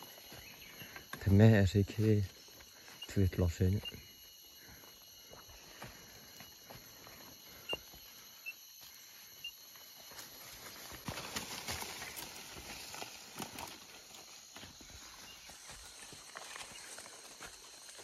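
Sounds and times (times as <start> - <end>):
footsteps crunching dry leaves: 10.0 - 18.0
brushing through undergrowth: 10.2 - 14.2.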